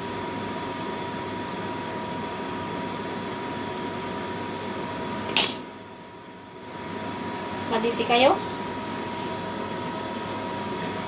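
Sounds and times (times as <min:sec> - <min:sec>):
fan humming: 0:00.0 - 0:11.0.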